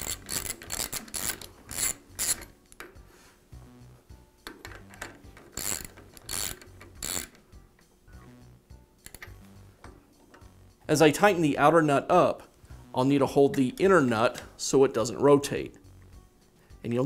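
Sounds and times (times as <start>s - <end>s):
ratchet wrench clicking: 0.0s - 2.6s, 4.5s - 7.4s, 9.0s - 9.4s.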